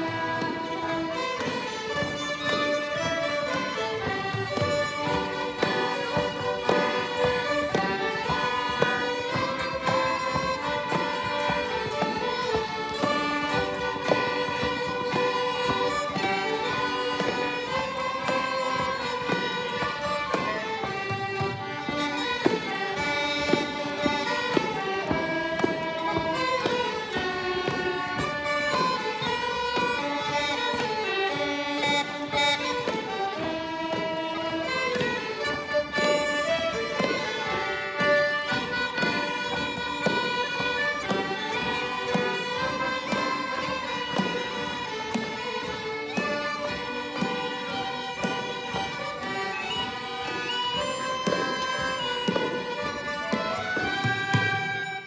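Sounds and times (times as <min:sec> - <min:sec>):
fiddles playing melody: 0:00.0 - 0:55.0.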